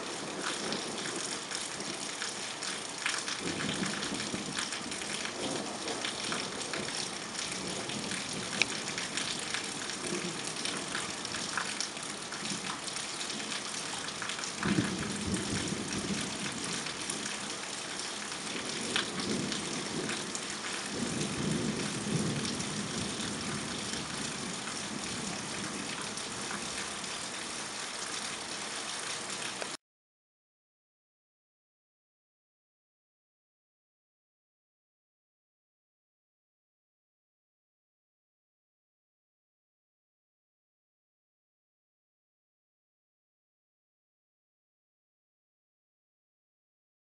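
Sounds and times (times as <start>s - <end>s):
raindrops ticking close by: 0.0s - 29.8s
heavy rain hissing: 3.3s - 29.8s.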